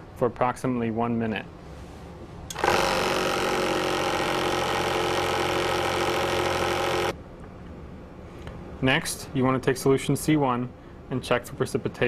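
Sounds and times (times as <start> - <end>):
vortex mixer motor hum: 2.5 - 7.2.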